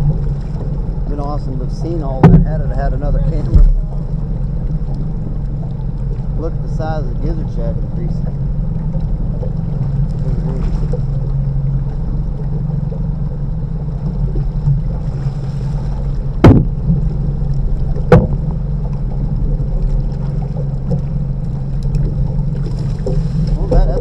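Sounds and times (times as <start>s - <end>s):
boat motor droning: 0.0s - 24.0s
sharp knocks: 2.1s - 2.6s, 3.4s - 3.9s, 16.4s - 17.0s, 18.0s - 18.4s.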